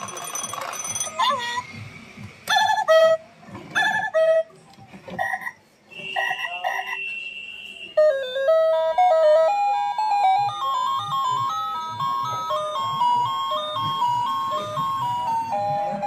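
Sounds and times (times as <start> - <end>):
alarm clock electronic music: 8.2 - 16.0.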